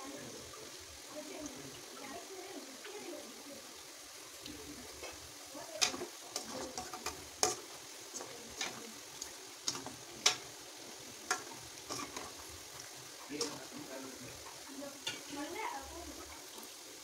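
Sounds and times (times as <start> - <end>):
food sizzling in hot oil: 0.0 - 17.0
ladle stirring: 4.4 - 15.5.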